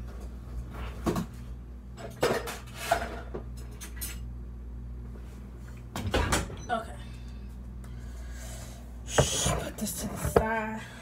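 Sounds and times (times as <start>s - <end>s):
steady low hum: 0.0s - 11.0s
pots and pans clattering: 2.0s - 4.1s.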